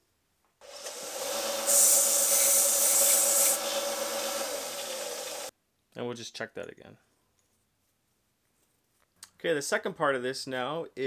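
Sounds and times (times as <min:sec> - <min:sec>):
bench grinder motor hum: 0:00.6 - 0:05.5
metal hissing against grinding wheel: 0:00.6 - 0:05.5.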